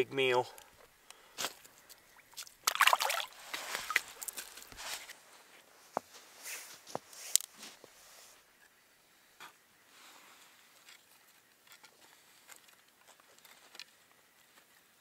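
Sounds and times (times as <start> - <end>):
water splashing in ice hole: 2.4 - 4.4.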